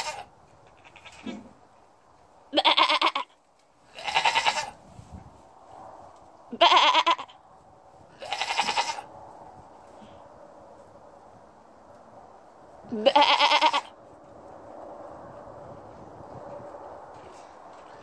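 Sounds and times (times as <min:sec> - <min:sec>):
goats bleating: 0:00.0 - 0:01.4, 0:02.5 - 0:04.8, 0:06.5 - 0:07.4, 0:08.2 - 0:09.1, 0:12.9 - 0:13.9.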